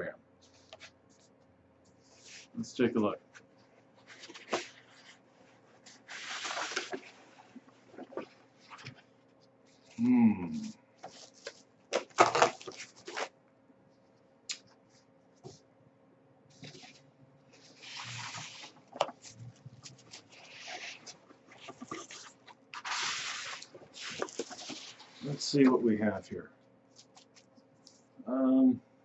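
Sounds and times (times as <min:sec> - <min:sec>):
paper and cardboard rustling: 0:02.0 - 0:02.9, 0:04.0 - 0:09.1, 0:10.6 - 0:13.3, 0:16.5 - 0:17.0, 0:17.6 - 0:25.9.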